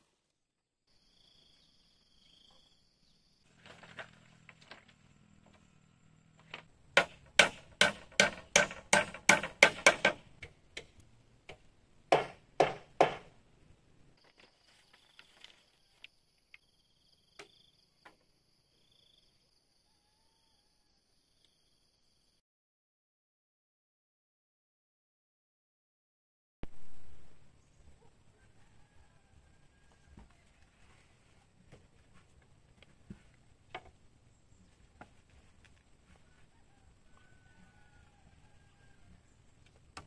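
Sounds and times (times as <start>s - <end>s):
hand tool striking wood: 6.5s - 13.4s.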